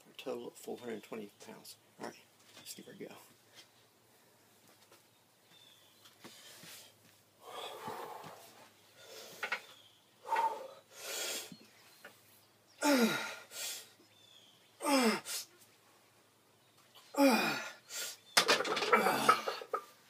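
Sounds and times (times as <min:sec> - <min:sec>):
forceful breathing: 0:06.3 - 0:09.6, 0:10.2 - 0:11.6
man grunting and groaning: 0:12.8 - 0:13.4, 0:14.8 - 0:15.4, 0:17.2 - 0:17.8, 0:18.8 - 0:19.6.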